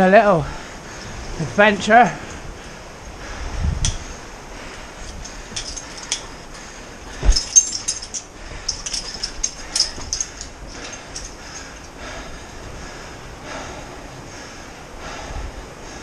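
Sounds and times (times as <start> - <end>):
stones and gear clinking: 4.7 - 12.0
heavy thump: 7.2 - 8.0.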